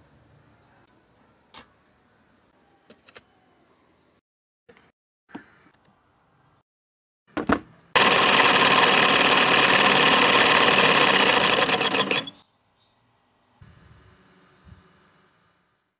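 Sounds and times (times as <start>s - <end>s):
scroll saw motor running: 8.0s - 12.4s.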